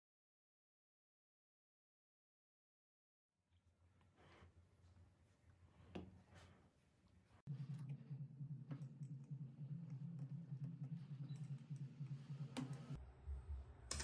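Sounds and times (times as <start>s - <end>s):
low hum: 7.1s - 14.0s.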